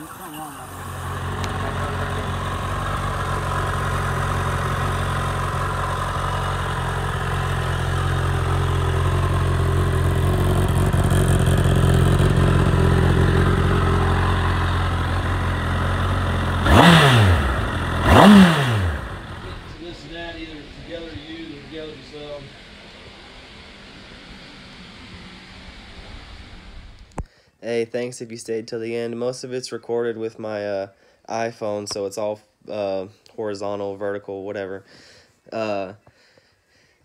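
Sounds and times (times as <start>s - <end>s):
engine revving: 0.0s - 27.2s
motorcycle engine idling: 0.0s - 27.2s.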